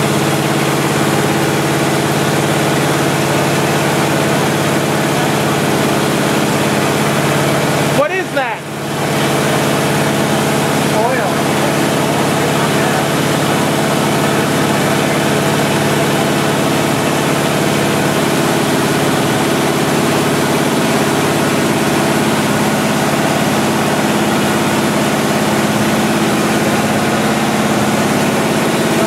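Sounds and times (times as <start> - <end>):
engine idling: 0.0 - 29.0.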